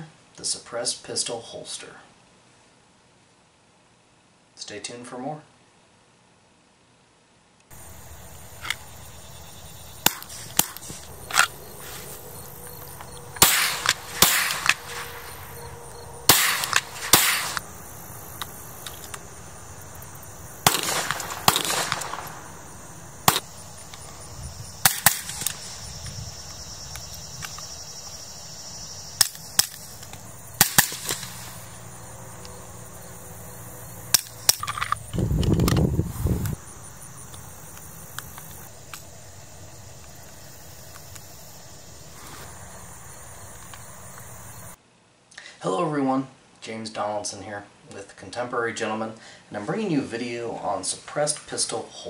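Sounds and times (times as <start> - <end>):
suppressed gunshots: 10.0 - 11.6, 13.3 - 15.6, 16.2 - 17.7, 20.6 - 23.5, 24.8 - 25.6, 30.6 - 31.7.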